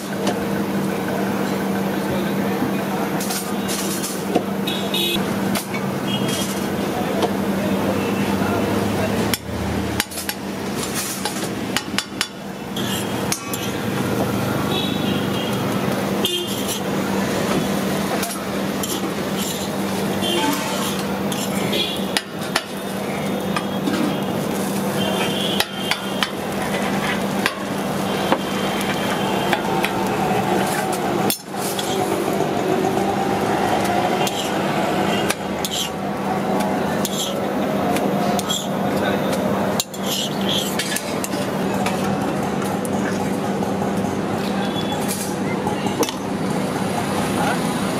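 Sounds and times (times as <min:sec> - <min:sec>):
metal spatula scraping griddle: 0:06.2 - 0:06.7, 0:12.8 - 0:13.8, 0:16.5 - 0:16.9, 0:18.2 - 0:22.0, 0:30.6 - 0:32.1, 0:34.2 - 0:34.6, 0:35.2 - 0:36.0, 0:36.9 - 0:37.4, 0:38.3 - 0:38.7, 0:39.8 - 0:41.5.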